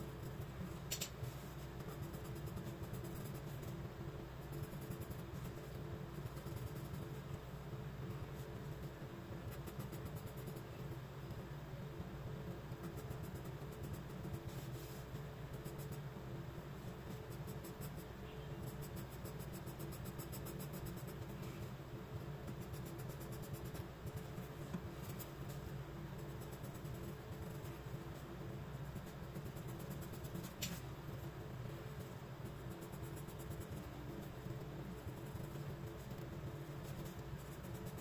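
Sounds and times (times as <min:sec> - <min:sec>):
steady low hum: 0:00.0 - 0:38.0.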